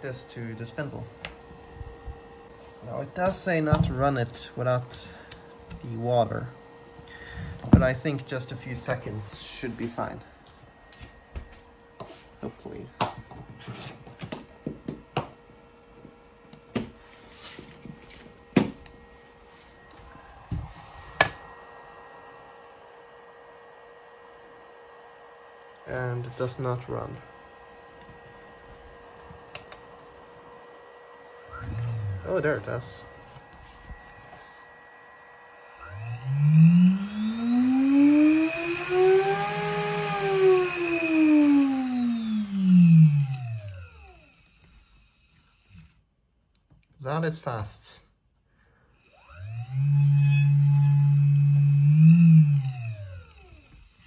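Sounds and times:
spindle motor whine: 0:17.2 - 0:46.0, 0:49.0 - 0:54.0.

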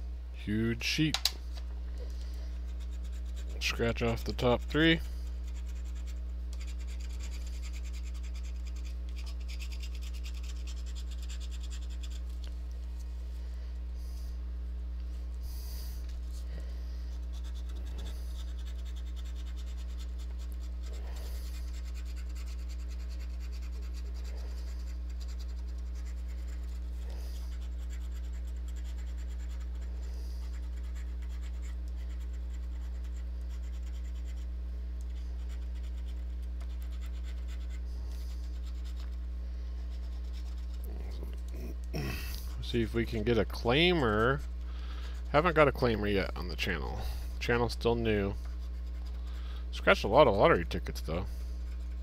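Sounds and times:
low electrical hum: 0:00.0 - 0:52.0.

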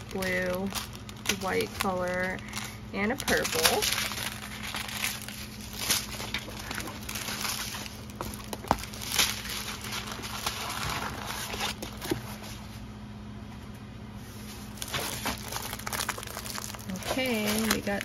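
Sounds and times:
plastic bags crinkling: 0:00.0 - 0:12.6, 0:14.4 - 0:18.0
paper sheet rustling: 0:00.0 - 0:12.8, 0:14.3 - 0:18.0.

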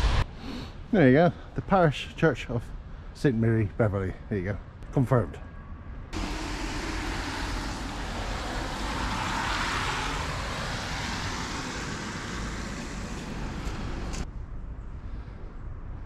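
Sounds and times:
car passing on wet road: 0:06.2 - 0:14.2.

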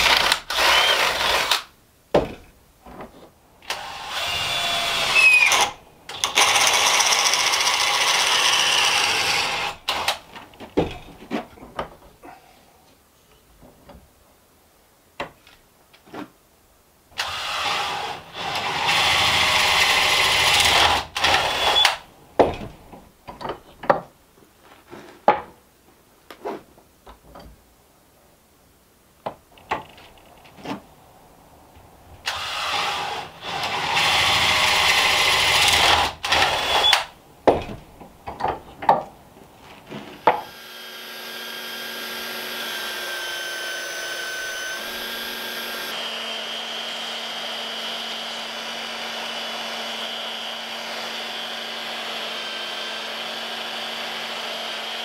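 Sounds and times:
cordless drill boring into wood: 0:00.0 - 0:01.7, 0:03.7 - 0:10.2, 0:17.2 - 0:22.0, 0:32.3 - 0:37.1, 0:40.2 - 0:55.0
handling knocks and clicks: 0:37.4 - 0:40.5.

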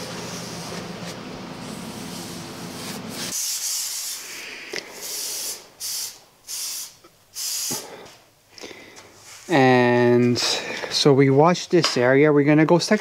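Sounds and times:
cloth wiping sheet metal: 0:00.0 - 0:04.4
spray adhesive hissing: 0:02.1 - 0:07.9.

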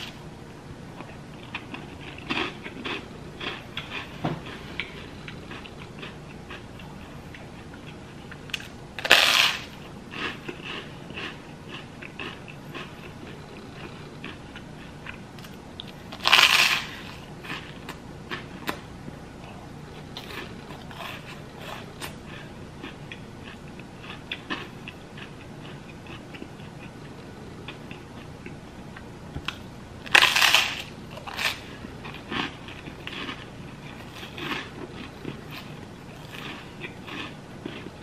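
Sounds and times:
crackly chewing: 0:01.0 - 0:38.0
toast crunching: 0:07.8 - 0:14.4, 0:15.0 - 0:18.8, 0:29.5 - 0:38.0.

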